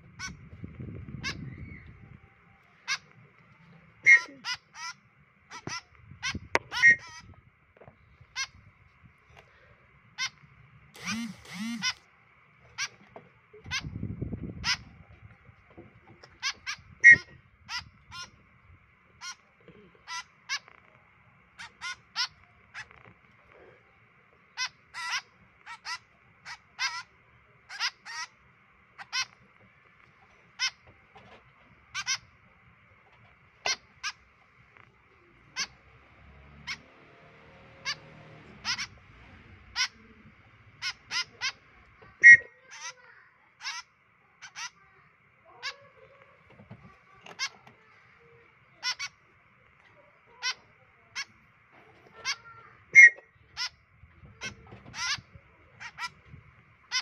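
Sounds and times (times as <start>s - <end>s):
fledglings begging calls: 0.0s - 2.1s, 2.7s - 7.4s, 8.2s - 8.6s, 10.2s - 10.4s, 11.0s - 15.0s, 16.2s - 18.4s, 19.2s - 20.7s, 21.5s - 23.0s, 24.6s - 28.4s, 29.0s - 29.4s, 30.5s - 30.9s, 31.9s - 32.3s, 35.4s - 44.8s, 48.8s - 49.2s, 50.4s - 50.6s, 52.2s - 57.0s.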